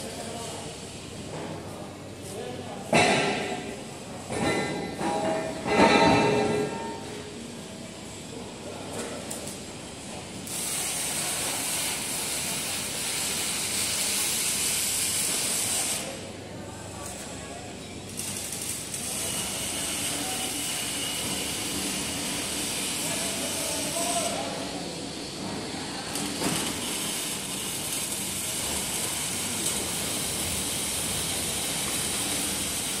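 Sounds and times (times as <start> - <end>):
band saw machine hissing: 18.7 - 33.0.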